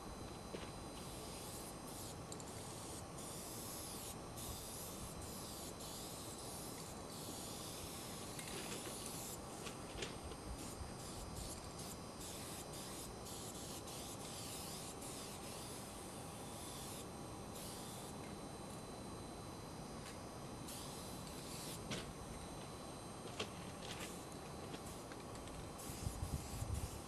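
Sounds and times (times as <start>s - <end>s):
spray paint can hissing: 1.0s - 9.6s, 10.6s - 18.1s, 20.7s - 21.8s, 25.8s - 27.0s.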